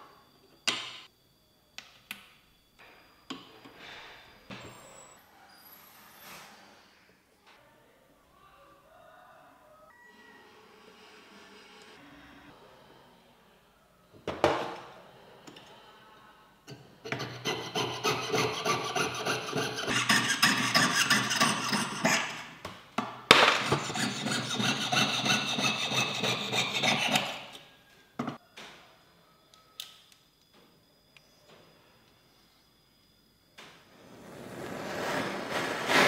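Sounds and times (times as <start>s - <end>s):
piercing saw cutting metal sheet: 17.0s - 22.6s, 23.5s - 27.6s.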